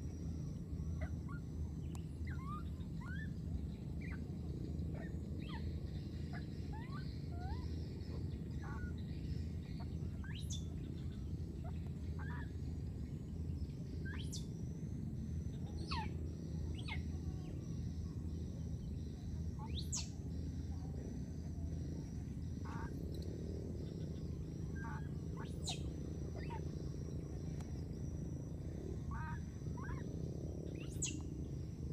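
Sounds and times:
low background rumble: 0:00.0 - 0:31.9
high-pitched animal calls: 0:24.7 - 0:26.8, 0:29.0 - 0:30.1.

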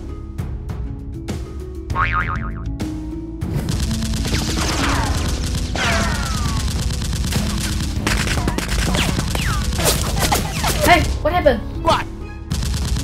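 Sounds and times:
low background music: 0:00.0 - 0:13.0
gunfire sound effects: 0:03.5 - 0:11.2, 0:12.5 - 0:13.0.

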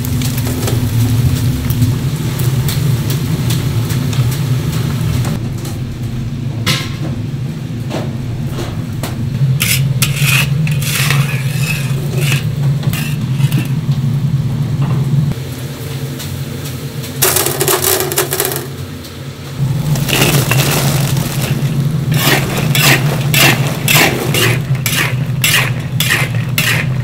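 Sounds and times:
hot oil bubbling: 0:00.0 - 0:05.3, 0:19.6 - 0:27.0
metal basket clinking and scraping: 0:09.6 - 0:13.8, 0:17.2 - 0:18.7, 0:19.6 - 0:27.0.

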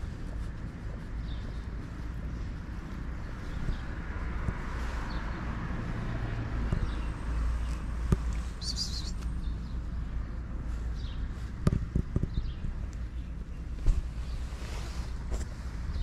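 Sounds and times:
wind on microphone: 0:00.0 - 0:07.2
distant traffic: 0:00.0 - 0:16.0
high bird chirp: 0:06.7 - 0:09.8.

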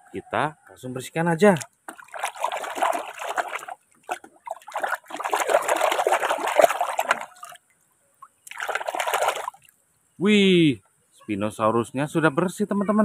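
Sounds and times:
water splashing in a metal basin: 0:01.4 - 0:07.6, 0:08.4 - 0:09.7.

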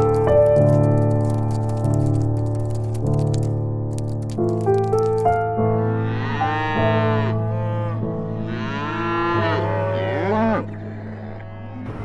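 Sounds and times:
soft background music: 0:00.0 - 0:12.0
calf mooing: 0:06.0 - 0:11.9.

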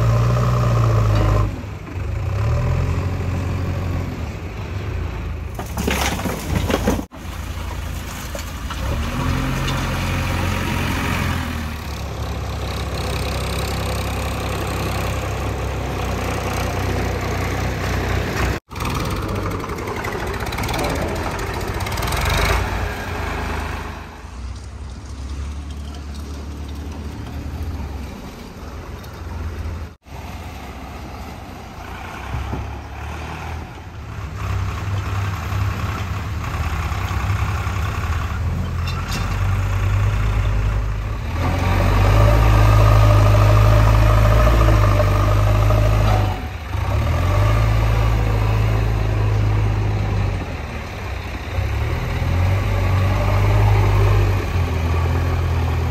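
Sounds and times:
diesel engines humming: 0:00.0 - 0:55.9.

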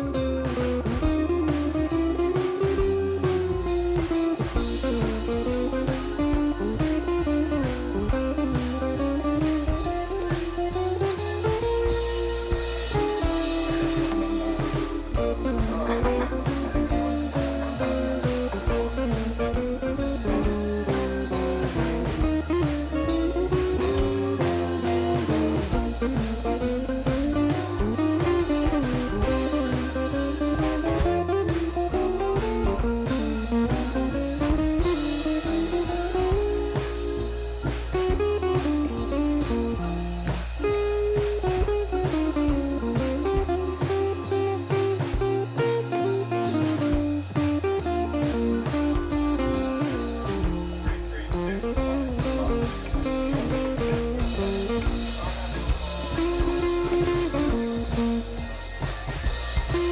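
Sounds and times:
bass: 0:00.0 - 0:59.9
guitar melody: 0:00.0 - 0:59.9
steady drum beat: 0:00.0 - 0:59.9.

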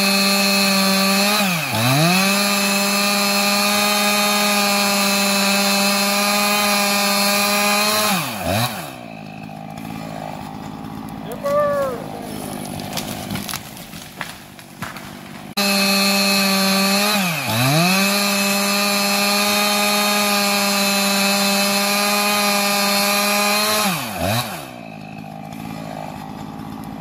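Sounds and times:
chainsaw running at full throttle: 0:00.0 - 0:27.0
sharp cracks: 0:09.5 - 0:15.6.

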